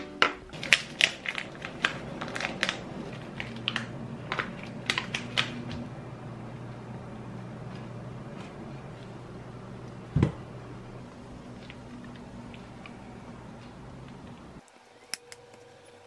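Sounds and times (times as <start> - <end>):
foil wrapper crinkling: 0.6 - 5.8
faint low hum: 0.6 - 16.0.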